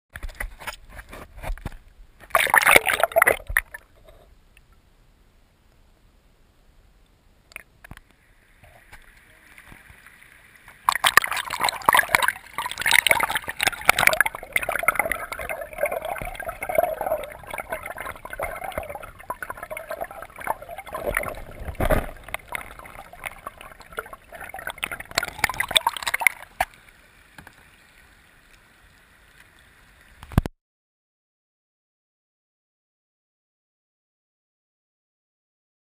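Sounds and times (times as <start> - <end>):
river water gurgling and splashing: 2.3 - 3.8, 10.8 - 27.1.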